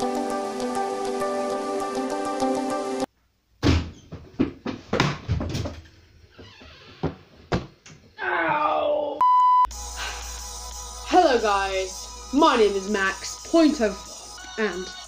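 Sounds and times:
test-tone beep: 9.2 - 9.7.

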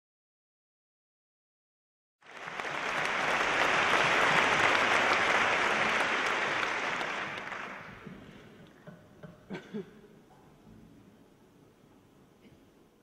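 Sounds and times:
audience applauding: 2.2 - 8.4.

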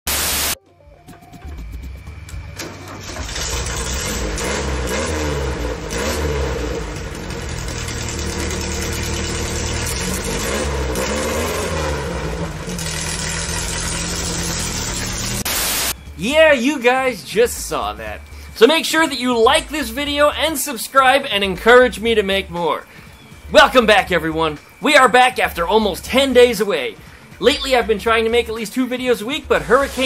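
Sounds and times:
engine revving: 1.5 - 16.0.

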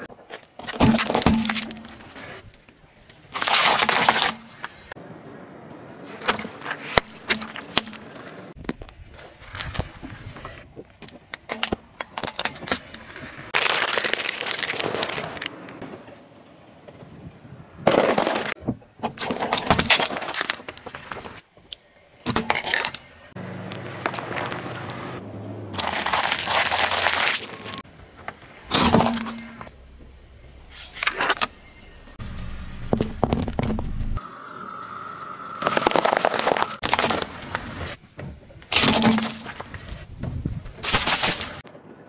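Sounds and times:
crunching and splattering: 3.3 - 4.6, 13.5 - 15.5, 25.8 - 27.8, 35.6 - 37.6
tyre crushing objects: 25.8 - 27.8, 35.6 - 39.8.

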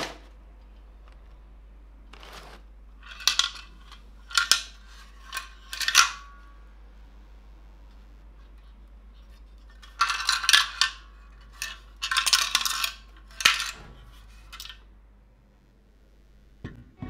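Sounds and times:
metal lantern clinking and rattling: 3.0 - 6.5, 9.7 - 14.8.

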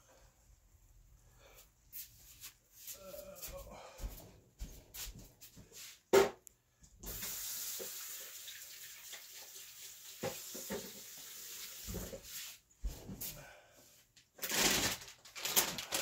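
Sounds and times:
eggs sizzling in a skillet: 7.1 - 11.9.

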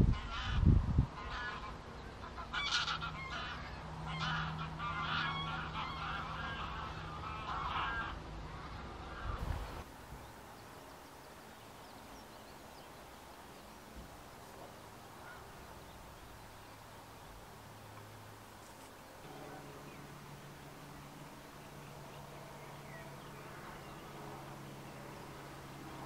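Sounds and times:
geese honking in flight: 0.1 - 0.6, 1.2 - 9.8, 15.2 - 15.5, 19.2 - 26.0.

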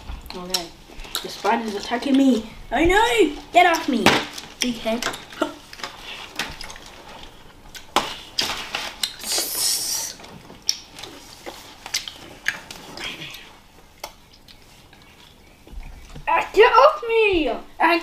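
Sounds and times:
plastic wrappers rustling: 0.3 - 13.6.

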